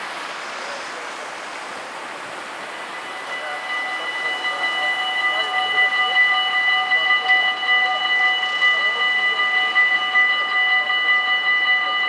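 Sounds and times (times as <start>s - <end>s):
level crossing warning bells: 2.6s - 12.0s.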